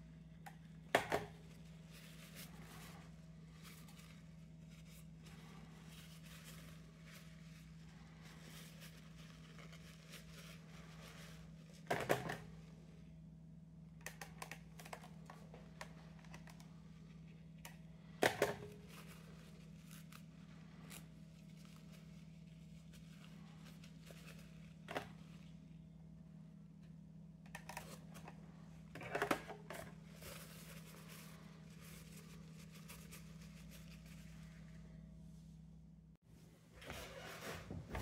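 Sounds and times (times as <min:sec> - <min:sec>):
paper tissue rustling and crinkling: 0:00.0 - 0:13.1, 0:14.7 - 0:25.9, 0:29.7 - 0:35.4
steady low hum: 0:00.0 - 0:38.0.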